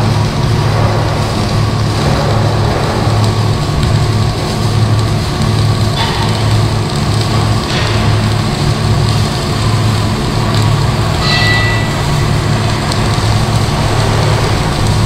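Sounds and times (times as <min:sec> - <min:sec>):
constant hiss: 0:00.0 - 0:15.0
low mechanical hum: 0:00.0 - 0:15.0
high double tone: 0:11.2 - 0:12.5.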